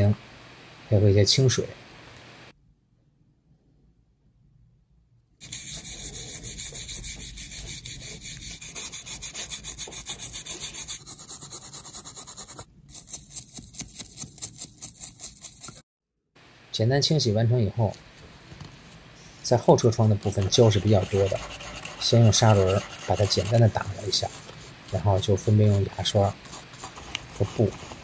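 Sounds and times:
toothbrush scrubbing in water: 5.4 - 15.8, 19.5 - 28.0.

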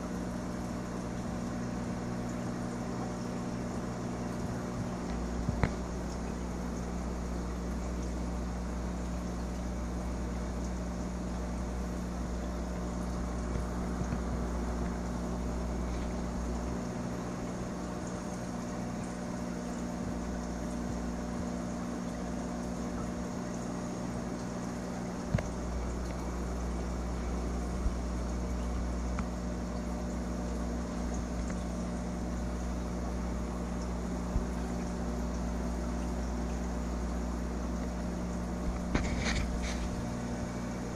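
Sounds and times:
aquarium pump hum: 0.0 - 40.9
small taps: 5.0 - 5.8.

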